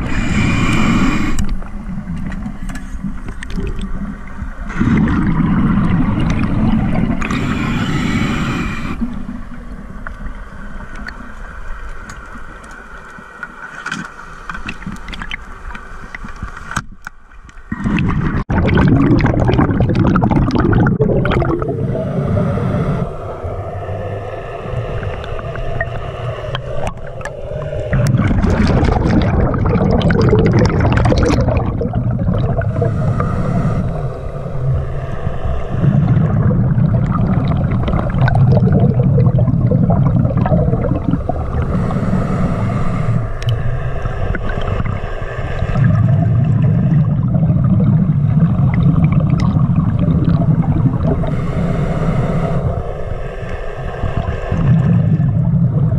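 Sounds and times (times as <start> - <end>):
diver breathing through regulator: 0.0 - 1.7, 6.4 - 9.3, 21.4 - 46.9, 50.4 - 55.6
exhaled bubbles: 0.0 - 10.1, 17.7 - 23.6, 24.6 - 55.9.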